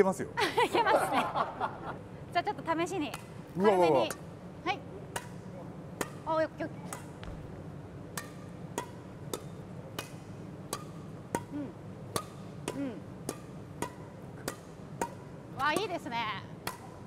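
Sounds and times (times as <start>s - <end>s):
rackets striking shuttlecock: 3.1s - 3.4s, 5.1s - 16.0s, 16.6s - 17.0s.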